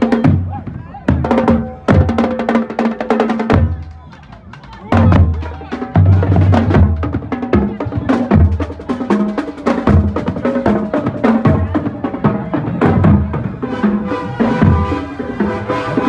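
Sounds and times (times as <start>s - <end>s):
brass holding notes: 13.6s - 16.0s.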